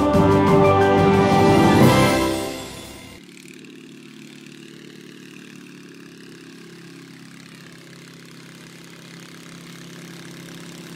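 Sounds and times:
light aircraft engine idling: 3.2s - 10.9s.

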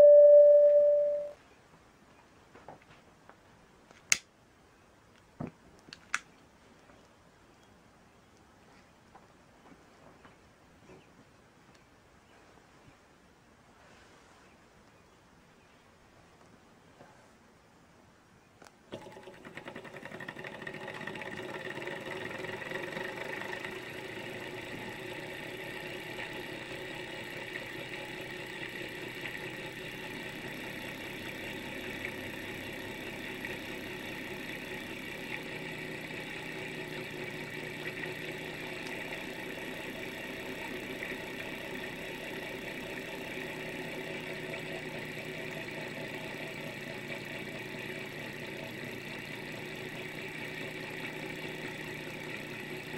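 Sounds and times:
small engine whirring and rattling: 18.9s - 52.9s.

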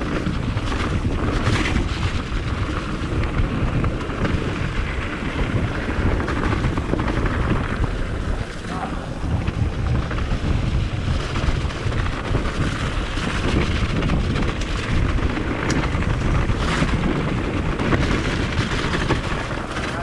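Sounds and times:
bike rumbling and rattling: 0.0s - 20.0s
wind buffeting microphone: 0.0s - 20.0s.

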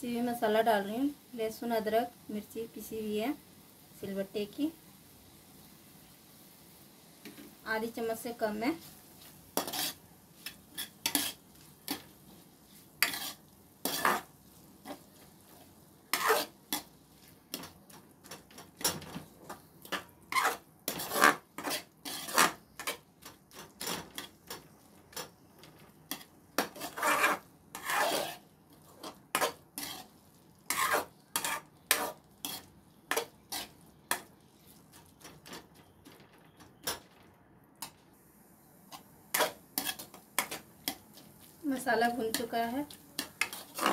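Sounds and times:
metal spoon scraping a pot: 9.6s - 12.1s, 13.0s - 15.0s, 16.1s - 16.9s, 19.9s - 24.3s, 26.1s - 30.1s, 30.7s - 34.3s, 39.3s - 41.0s, 43.2s - 43.9s.

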